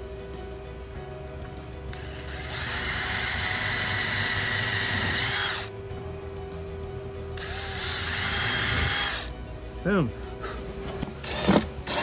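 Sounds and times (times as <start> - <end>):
cordless drill whining: 2.0 - 5.7, 7.4 - 9.3, 11.2 - 12.0.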